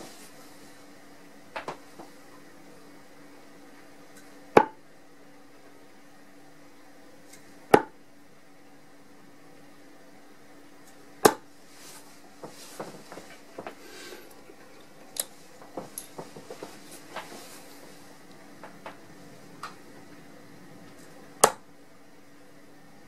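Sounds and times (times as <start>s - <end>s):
darts thudding into dartboard: 4.6s - 4.8s, 7.7s - 7.9s, 11.2s - 11.5s, 21.4s - 21.6s.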